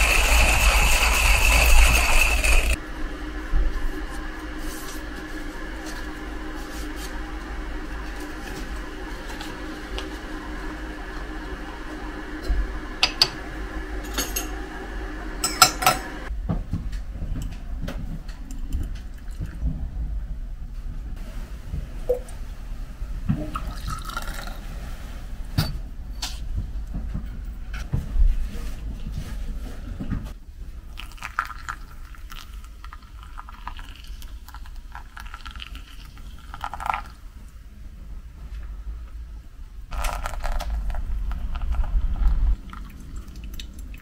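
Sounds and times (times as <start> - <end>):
loud whirring machine: 0.0 - 16.3
quiet steady hum: 0.0 - 44.0
dishes clinking: 15.4 - 16.2.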